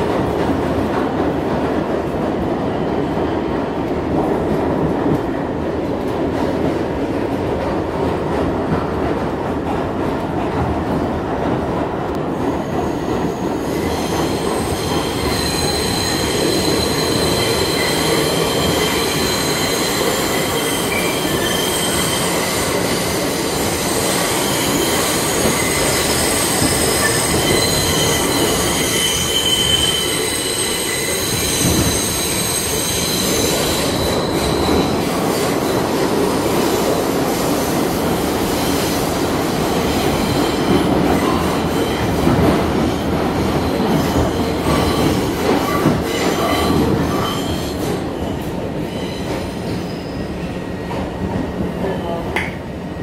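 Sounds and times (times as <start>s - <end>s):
subway train rumbling on rails: 0.0s - 53.0s
high-pitched wheel squeal: 24.5s - 34.8s.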